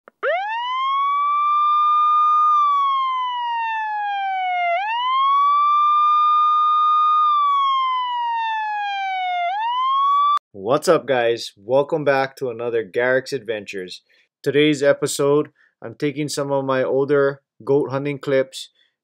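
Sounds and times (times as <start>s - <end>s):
wailing siren: 0.1s - 10.4s.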